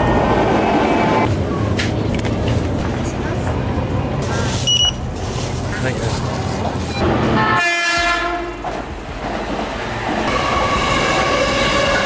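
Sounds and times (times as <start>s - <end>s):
train running on rails: 0.0s - 12.0s
train steady whine: 2.8s - 12.0s
train horn blast: 7.4s - 8.6s, 10.3s - 12.0s.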